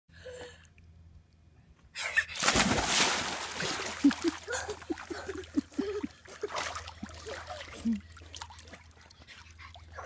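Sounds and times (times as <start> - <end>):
big splash into pool: 2.4 - 4.3
water churning and splashing: 2.4 - 10.0.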